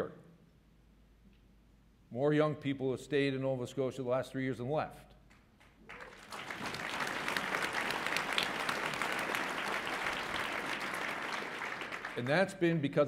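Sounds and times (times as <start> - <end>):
audience applauding: 5.6 - 12.5.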